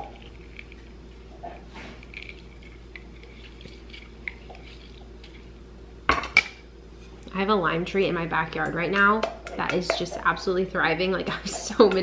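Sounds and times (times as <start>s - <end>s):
steady low hum: 0.0s - 12.0s
juice dripping: 2.0s - 5.6s.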